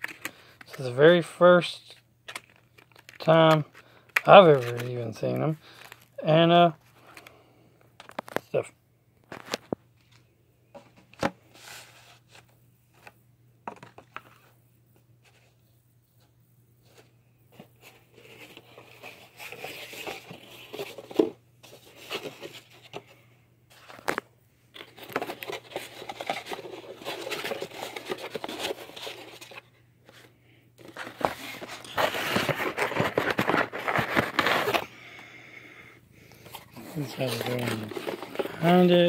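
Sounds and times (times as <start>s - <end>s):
cardboard rustling and scraping: 10.8s - 13.1s, 16.8s - 23.1s, 24.8s - 34.8s, 36.4s - 39.0s.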